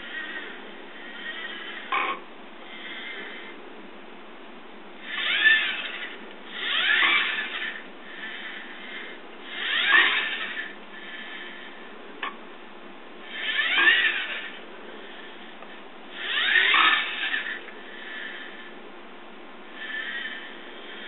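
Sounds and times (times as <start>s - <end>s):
robot wheel motors whining: 0.0s - 3.4s, 5.0s - 11.5s, 13.3s - 15.3s, 16.1s - 18.6s.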